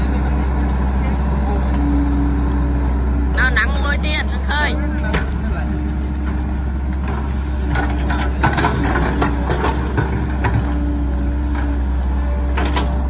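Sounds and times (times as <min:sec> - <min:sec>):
excavator diesel engine running: 0:00.0 - 0:13.0
excavator bucket clanks: 0:07.0 - 0:10.8, 0:12.5 - 0:13.0.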